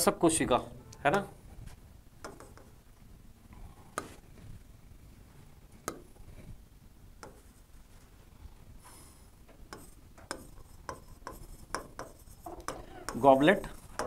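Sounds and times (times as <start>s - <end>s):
stylus tapping on touchscreen: 2.2s - 2.8s, 3.9s - 4.2s, 5.8s - 6.2s, 7.2s - 7.5s, 9.7s - 13.3s.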